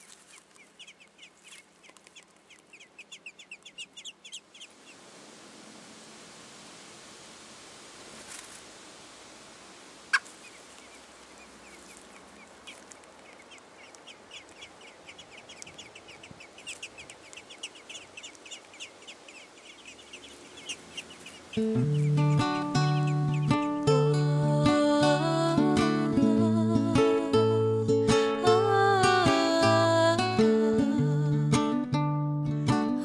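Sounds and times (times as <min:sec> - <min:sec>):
nestlings chirping: 0:00.0 - 0:05.0, 0:10.1 - 0:24.2
steady hiss: 0:00.0 - 0:25.6.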